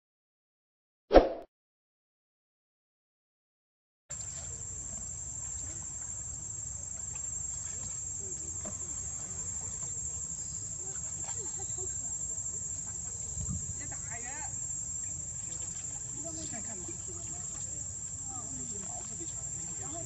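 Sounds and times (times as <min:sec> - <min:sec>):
insects droning: 0:04.1 - 0:20.0.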